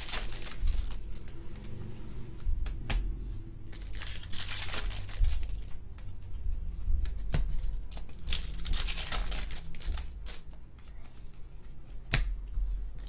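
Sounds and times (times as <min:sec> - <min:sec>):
cards rustling and sliding: 0:07.0 - 0:12.2.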